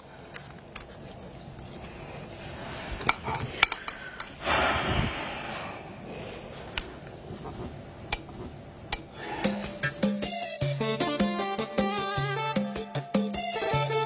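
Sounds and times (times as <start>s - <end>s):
rustling noise: 0.1s - 3.6s, 6.4s - 8.9s
glasses and plates clinking: 3.1s - 4.4s.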